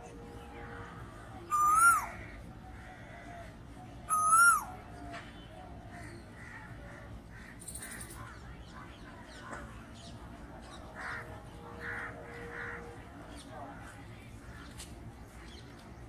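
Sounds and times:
koel calling: 1.5s - 2.2s.

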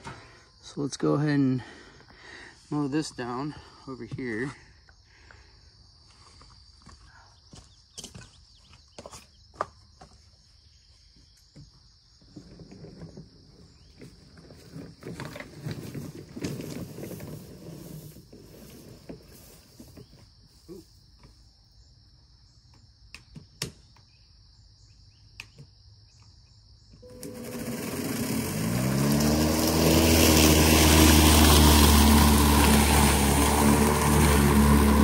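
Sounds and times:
lawn mower motor whining: 12.4s - 20.0s, 27.0s - 35.0s
high-pitched buzz: 27.0s - 35.0s.

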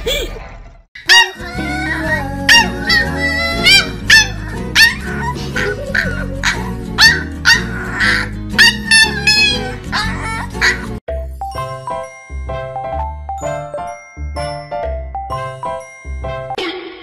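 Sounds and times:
puppy barking in high yaps: 1.0s - 1.8s, 2.5s - 11.0s
background music: 1.1s - 17.0s.

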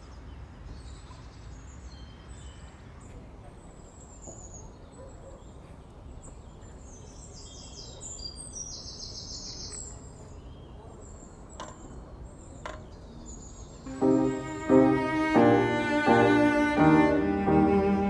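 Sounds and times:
low outdoor noise: 0.0s - 18.0s
songbirds chirping and trilling: 0.0s - 18.0s
cello and piano music: 13.9s - 18.0s.

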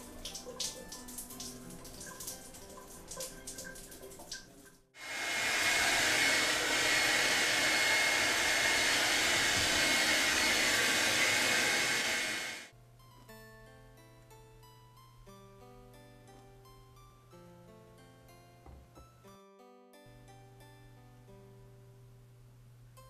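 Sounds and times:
soft music: 0.0s - 5.0s, 12.7s - 23.0s.

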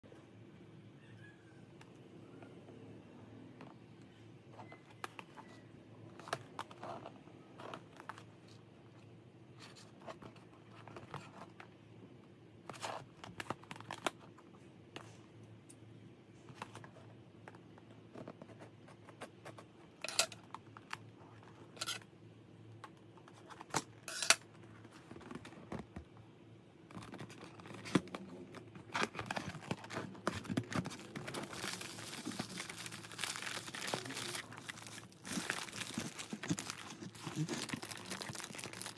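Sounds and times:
plastic wrapping crinkling: 26.9s - 38.9s.

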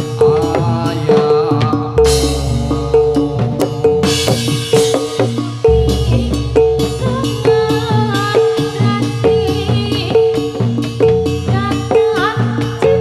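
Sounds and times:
busy drumming: 0.0s - 13.0s
wavering melody line: 1.8s - 13.0s
struck metal note: 2.0s - 8.2s.

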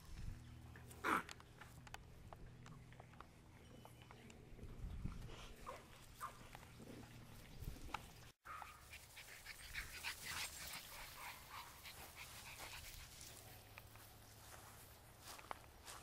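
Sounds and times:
rustling in dry grass: 8.9s - 16.0s.

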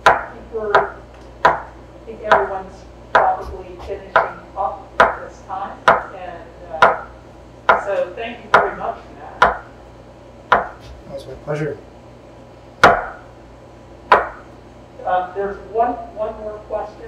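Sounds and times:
knife knocking on wooden board: 10.5s - 11.0s.

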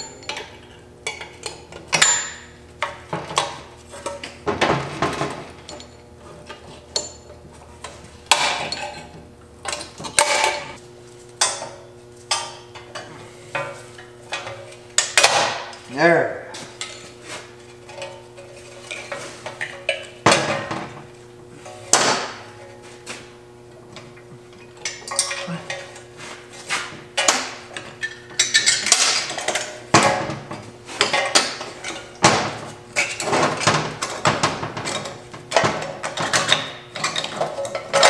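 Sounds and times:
steel parts clanking and scraping: 16.8s - 20.8s, 24.7s - 32.2s, 33.0s - 38.0s.

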